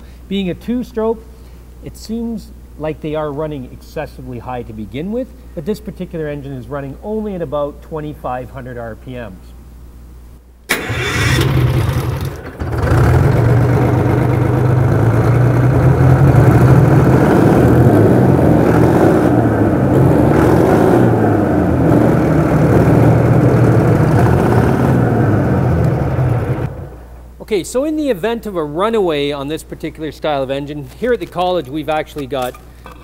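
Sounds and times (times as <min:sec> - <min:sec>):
diesel engine running: 0:10.7 - 0:27.0.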